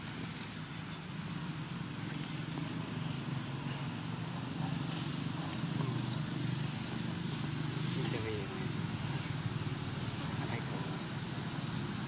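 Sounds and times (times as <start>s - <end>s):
crackling dry leaf litter: 0.0s - 4.2s
low motor hum: 0.0s - 12.0s.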